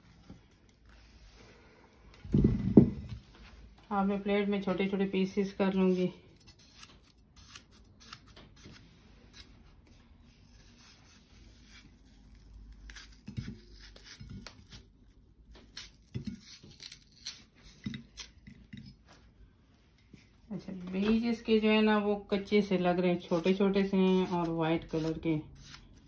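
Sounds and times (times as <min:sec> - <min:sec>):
soft thumps: 0:02.2 - 0:03.3
knife cutting watermelon: 0:10.4 - 0:14.9.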